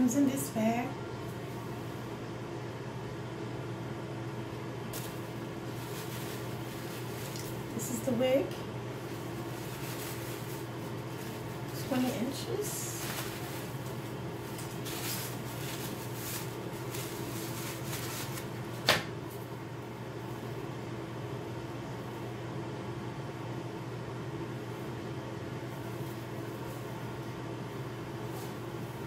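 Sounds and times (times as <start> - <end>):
fan humming: 0.0 - 29.0
wig rustling: 4.9 - 19.4.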